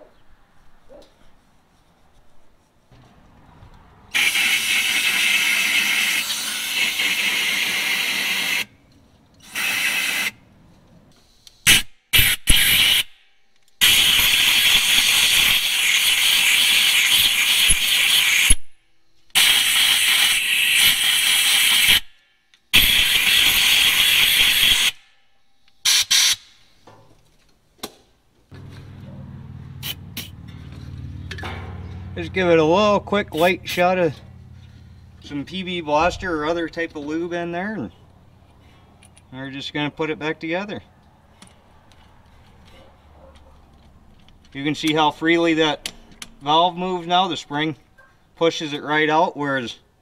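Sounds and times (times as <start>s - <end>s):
aerosol spray can hissing: 29.8s - 30.4s.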